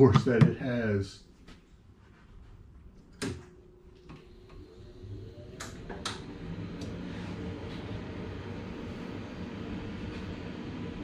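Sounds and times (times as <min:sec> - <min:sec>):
vacuum pump humming: 0:03.1 - 0:11.0.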